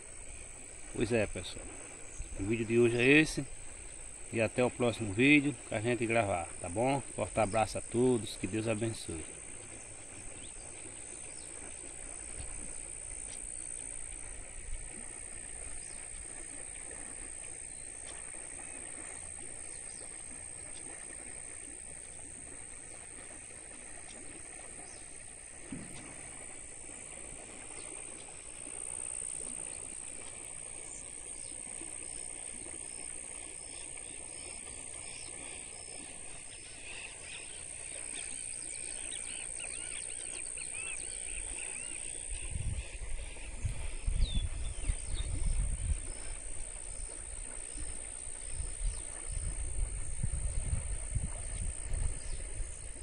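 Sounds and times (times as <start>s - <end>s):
high insect drone: 0.0s - 53.0s
wind buffeting microphone: 42.3s - 53.0s.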